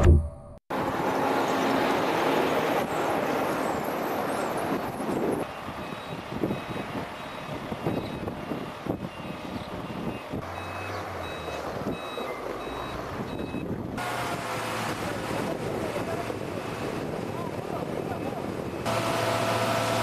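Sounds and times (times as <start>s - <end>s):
wind: 0.0s - 20.0s.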